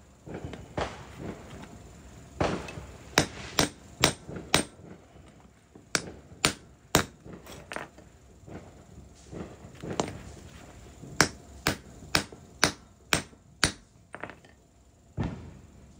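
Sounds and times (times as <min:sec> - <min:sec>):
hammer tapping metal: 0:03.2 - 0:04.8, 0:06.0 - 0:07.8, 0:11.2 - 0:14.4.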